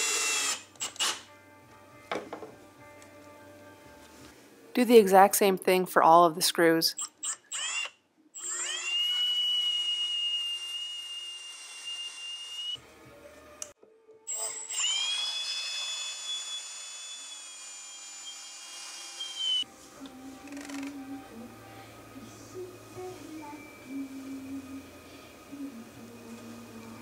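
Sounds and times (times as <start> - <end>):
cordless drill whining: 0.0 - 1.2, 7.2 - 12.8, 14.3 - 19.6.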